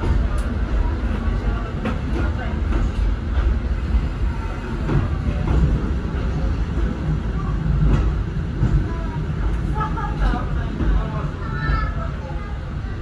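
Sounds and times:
diesel railcar engine rumble: 0.0s - 13.0s.

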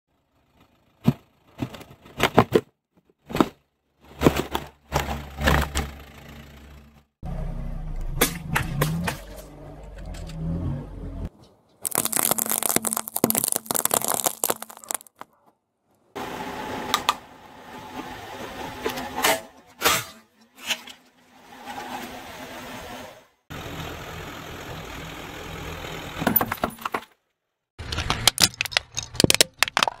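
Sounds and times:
walnut shells cracking under tyre: 11.8s - 15.2s, 27.8s - 30.0s
objects bursting with cracks and pops: 11.8s - 15.3s, 27.8s - 30.0s
plastic toy crackling under tyre: 11.8s - 15.4s, 27.8s - 30.0s.

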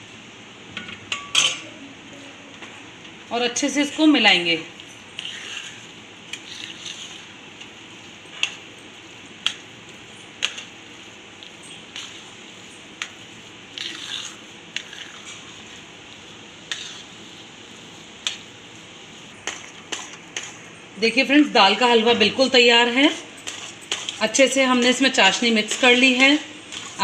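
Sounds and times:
spoon scraping thick wet food: 4.8s - 8.7s, 10.3s - 18.4s, 22.8s - 27.0s.

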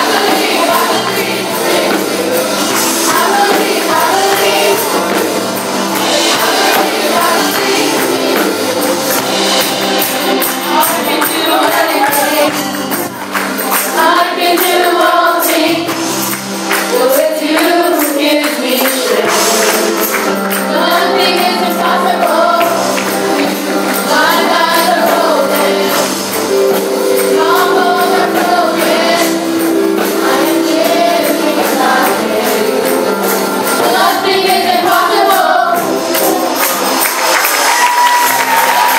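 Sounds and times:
church band playing chords: 0.0s - 38.9s
tambourine shaken: 0.0s - 38.9s.

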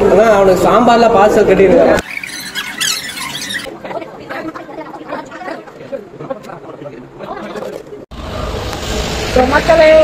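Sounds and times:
high squeaky chirp: 2.0s - 3.7s.

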